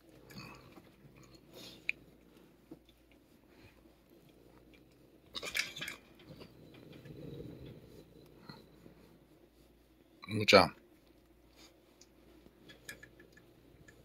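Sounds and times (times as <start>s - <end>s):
glove rubbing fur: 6.5s - 10.2s.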